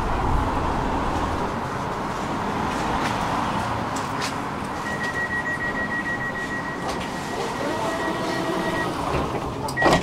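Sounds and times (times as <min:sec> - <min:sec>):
high beeping warning tone: 0:04.8 - 0:09.0
tram humming: 0:04.8 - 0:09.9.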